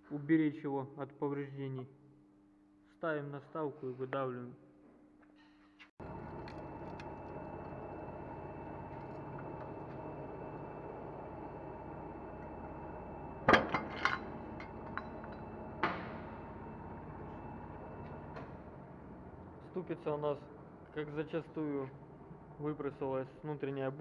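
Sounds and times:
steady machine hum: 0:06.0 - 0:23.1.

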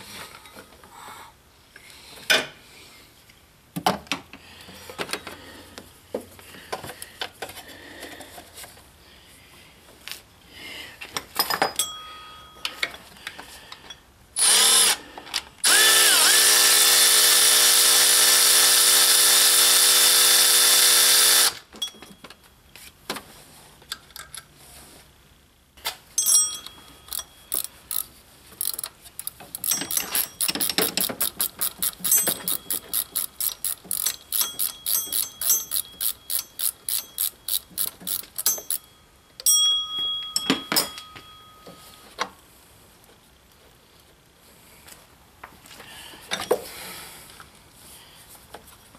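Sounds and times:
cordless ratchet motor whirring: 0:14.4 - 0:15.0, 0:15.6 - 0:21.6, 0:27.1 - 0:38.8
sharp ratchet clicks: 0:15.6 - 0:21.6, 0:26.6 - 0:38.9.

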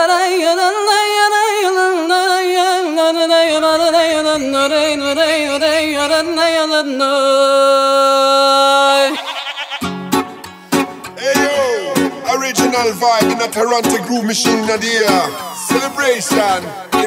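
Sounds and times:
person singing slow melody: 0:11.2 - 0:17.0.

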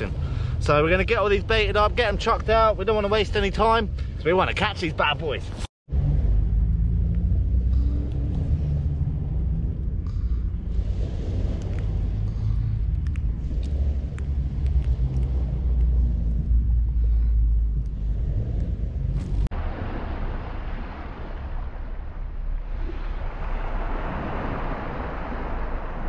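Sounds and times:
wind buffeting microphone: 0:07.3 - 0:26.0
small waves washing on beach: 0:07.6 - 0:26.0
faint clicks: 0:11.6 - 0:16.0.

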